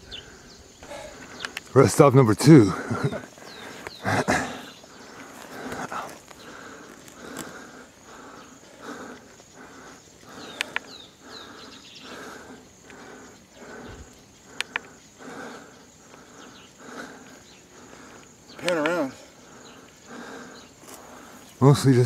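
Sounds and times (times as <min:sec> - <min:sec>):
heavy rhythmic breathing: 0:00.0 - 0:22.0
sharp clicks: 0:01.2 - 0:01.8, 0:10.3 - 0:11.0, 0:14.5 - 0:15.0, 0:18.2 - 0:19.0.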